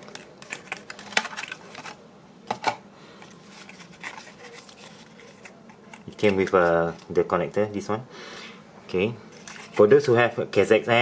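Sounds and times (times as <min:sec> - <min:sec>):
packaging rustling: 0:00.0 - 0:07.2.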